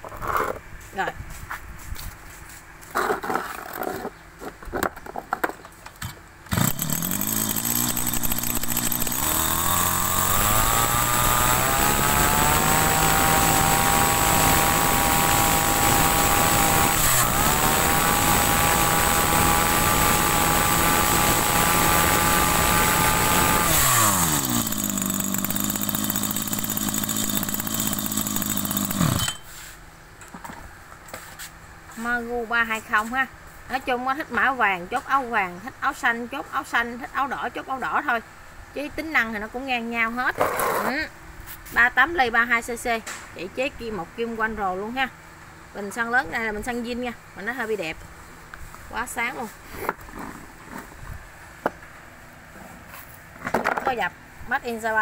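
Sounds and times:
brush cutter engine revving: 6.0 - 29.4.

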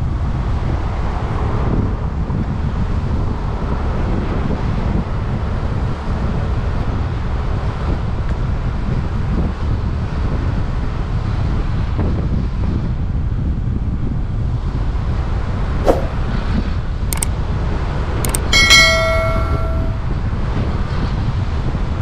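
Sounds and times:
sharp clicks: 18.3 - 18.5
metal object struck and ringing: 18.3 - 20.2.

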